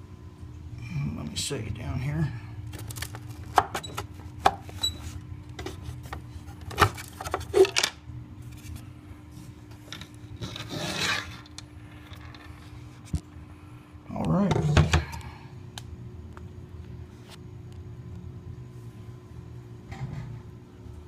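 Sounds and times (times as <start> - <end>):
panel scraping: 10.3 - 12.9.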